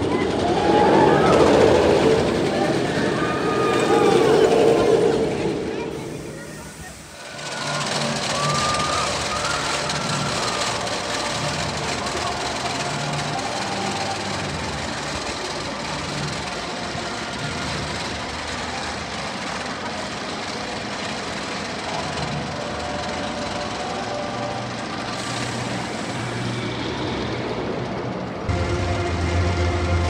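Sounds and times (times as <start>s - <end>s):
roller coaster chain lift clatter: 0.0s - 28.5s
low hum: 26.4s - 30.0s.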